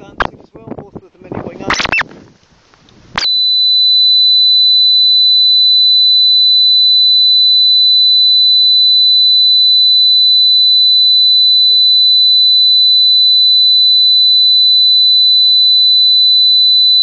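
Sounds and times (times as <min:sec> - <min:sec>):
high-pitched electronic whine: 0:01.6 - 0:02.1, 0:03.2 - 0:17.0.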